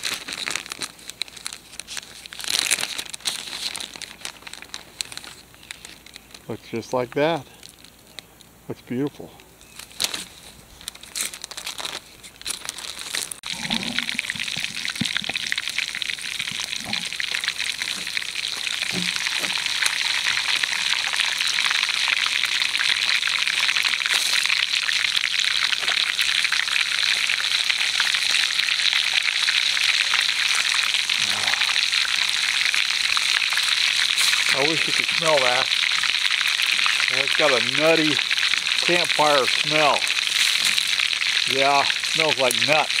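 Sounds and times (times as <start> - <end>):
fish sizzling in hot oil: 13.2 - 43.0.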